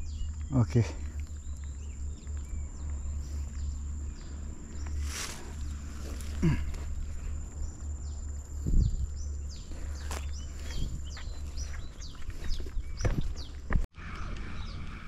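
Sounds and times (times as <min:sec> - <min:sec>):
insect drone: 0:00.0 - 0:11.6
low rumble: 0:00.0 - 0:12.2
bird chirps: 0:00.0 - 0:15.0
rustling: 0:03.2 - 0:08.6
dull thumps: 0:12.4 - 0:13.9.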